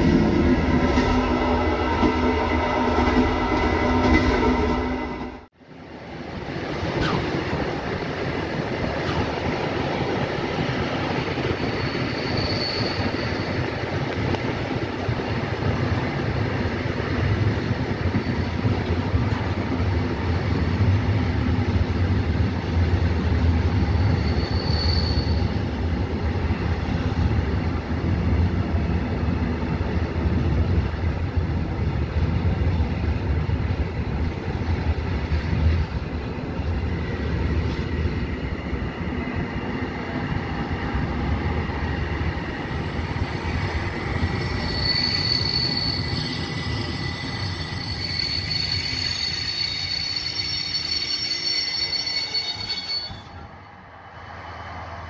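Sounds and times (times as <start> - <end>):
train wheels rumbling on rails: 0.0 - 55.0
high-pitched wheel squeal: 11.5 - 13.8, 24.0 - 25.6, 42.7 - 53.4.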